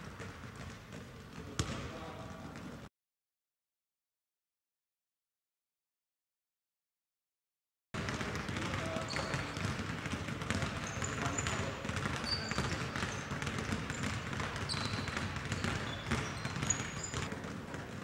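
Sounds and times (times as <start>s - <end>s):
basketballs bouncing on court: 0.0s - 2.8s, 8.0s - 18.0s
sneaker squeaks: 8.1s - 18.0s.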